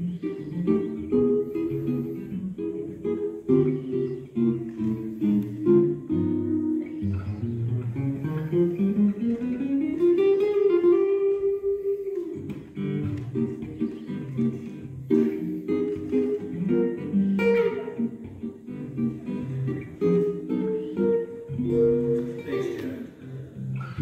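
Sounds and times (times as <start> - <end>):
solo acoustic guitar: 0.0 - 24.0.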